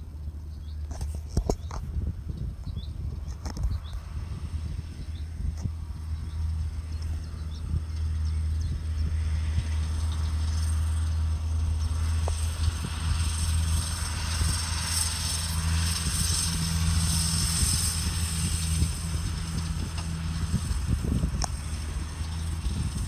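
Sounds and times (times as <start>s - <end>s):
tractor diesel engine under load: 0.0s - 23.0s
hissing rush of spreader: 7.8s - 23.0s.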